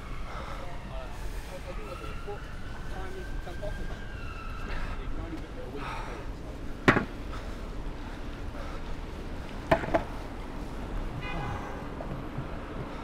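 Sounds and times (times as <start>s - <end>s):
city traffic noise: 0.0s - 13.0s
longboard clacking on stone paving: 9.6s - 10.2s.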